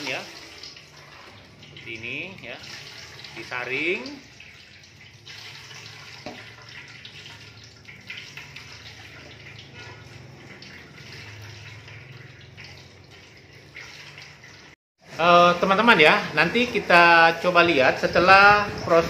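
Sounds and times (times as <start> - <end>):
liquid trickling into metal pot: 0.0 - 14.8.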